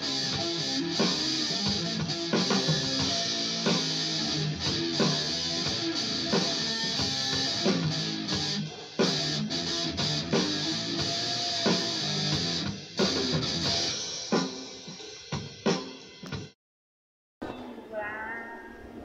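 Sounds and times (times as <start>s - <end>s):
electric guitar strumming chords: 0.0s - 14.0s.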